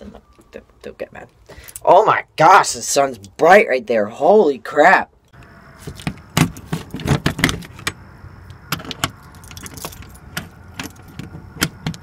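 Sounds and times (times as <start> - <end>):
keys jingling: 8.8 - 11.8.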